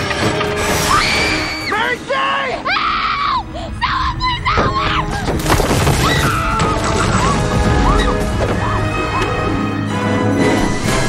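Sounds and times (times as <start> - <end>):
dramatic orchestral music: 0.0 - 11.0
stonework crumbling and crashing: 5.1 - 8.6.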